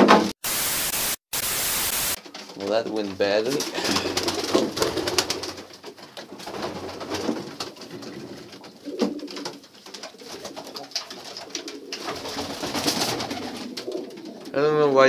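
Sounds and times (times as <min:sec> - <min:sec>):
pigeons cooing: 0:03.6 - 0:14.6.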